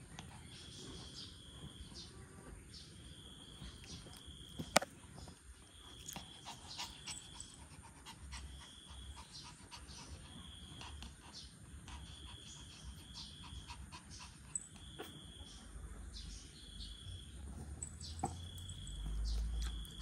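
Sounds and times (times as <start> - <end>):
small dog panting: 0.0 - 2.0, 3.5 - 15.6.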